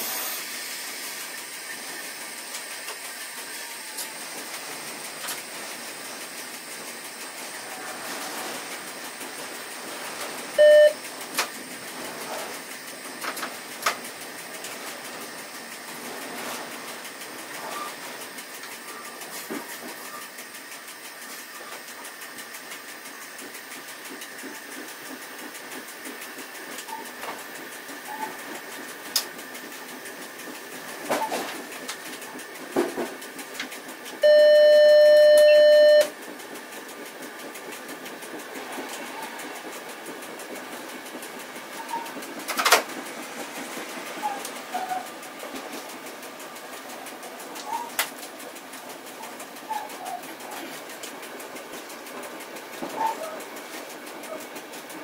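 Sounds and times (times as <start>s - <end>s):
train wheels on rail: 0.0s - 55.0s
electronic cab beep: 10.6s - 11.0s, 34.2s - 36.1s.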